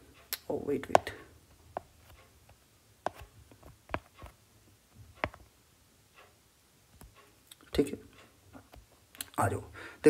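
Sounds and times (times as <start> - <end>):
pen tapping on tablet: 0.9 - 2.2, 3.0 - 4.4, 5.0 - 5.5.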